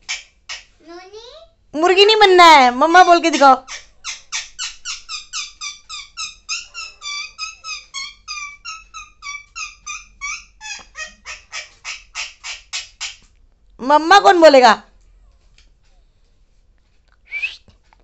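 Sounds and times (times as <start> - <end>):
parakeet chattering calls: 0.0 - 0.8, 2.8 - 13.2.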